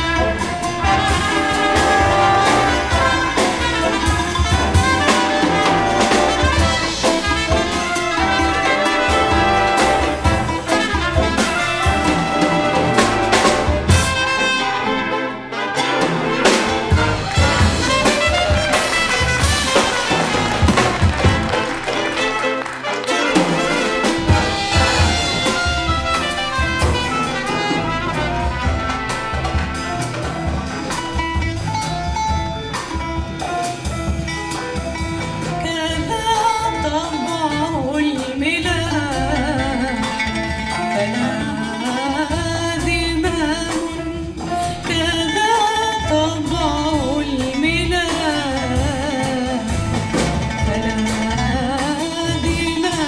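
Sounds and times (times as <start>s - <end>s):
big band with drums and bass: 0.0s - 53.0s
woman singing with vibrato: 35.5s - 53.0s.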